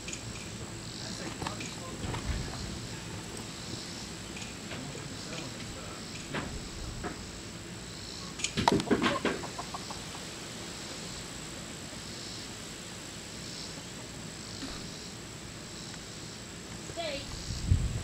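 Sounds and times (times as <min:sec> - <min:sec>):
chicken clucking: 0:08.9 - 0:10.3.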